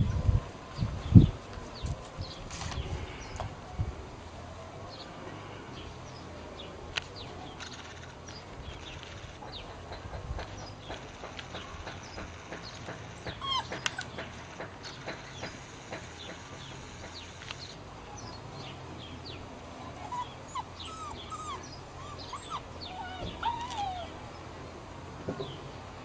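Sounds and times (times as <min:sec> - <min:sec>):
small birds chirping and singing: 0:00.0 - 0:03.6, 0:04.9 - 0:24.6.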